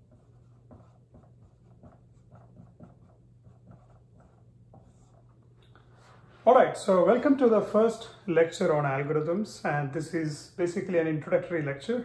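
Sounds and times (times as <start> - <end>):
marker scratching on whiteboard: 0.0 - 5.3.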